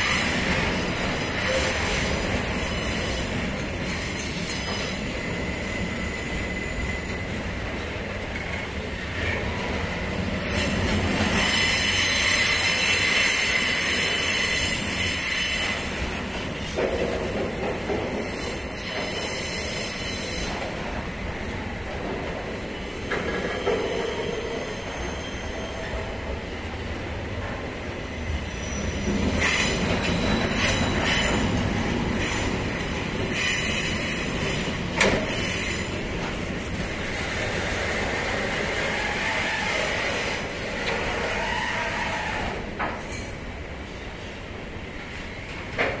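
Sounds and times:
train wheels squealing: 0.0s - 7.8s, 10.4s - 16.3s, 17.7s - 21.0s, 22.4s - 26.4s, 27.8s - 43.4s
freight train rolling: 0.0s - 46.0s.

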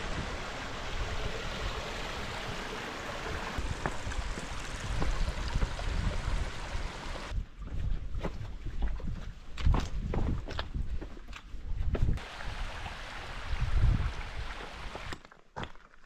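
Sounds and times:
water rushing over boulders: 0.0s - 7.4s, 12.2s - 15.2s.

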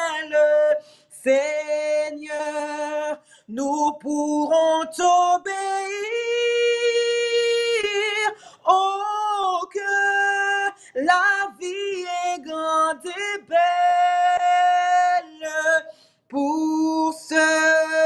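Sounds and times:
woman and man singing a hymn: 0.0s - 18.0s.

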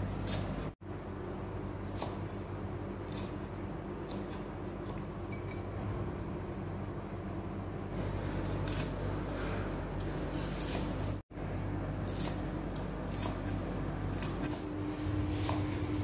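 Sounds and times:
knife chopping on wooden board: 0.0s - 0.8s, 12.0s - 14.7s, 15.3s - 16.0s.

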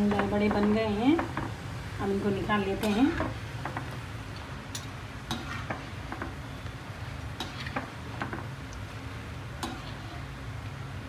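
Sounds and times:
fritters sizzling in hot oil: 0.0s - 11.0s.

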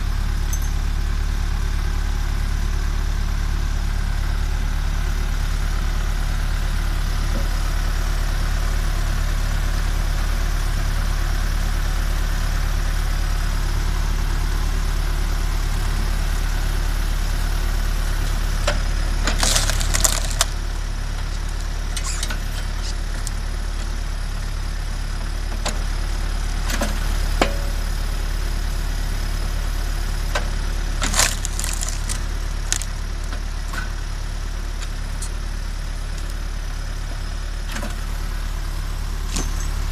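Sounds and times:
tractor diesel engine running: 0.0s - 39.9s
log cracking and splintering: 19.2s - 20.6s, 31.0s - 33.4s.

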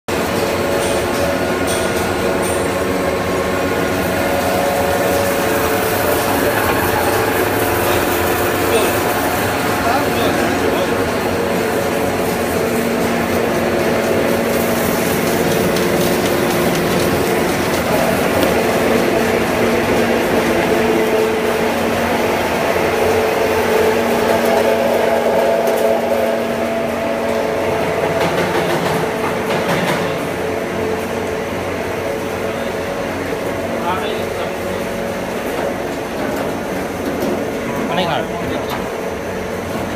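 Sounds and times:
extruder machine droning: 0.1s - 28.2s.

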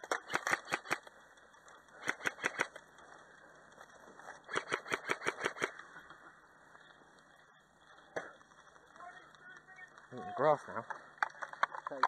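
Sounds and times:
airsoft gunfire: 0.1s - 1.1s, 2.0s - 2.7s, 4.5s - 5.8s.

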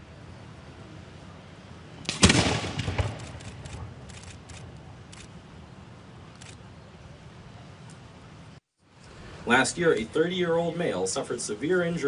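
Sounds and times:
firework bang: 2.1s - 3.3s
firework pops: 2.1s - 3.4s.

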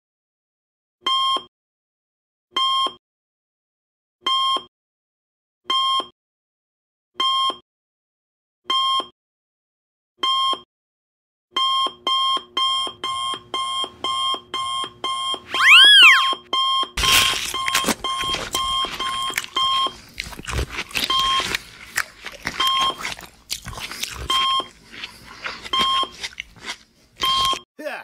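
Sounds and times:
swooping tone rising and falling: 15.6s - 16.3s.

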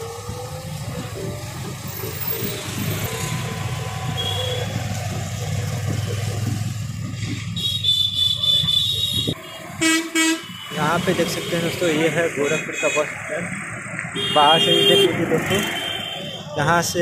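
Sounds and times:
traffic engine and road rumble: 0.0s - 17.0s
high steady whine: 1.9s - 6.4s.

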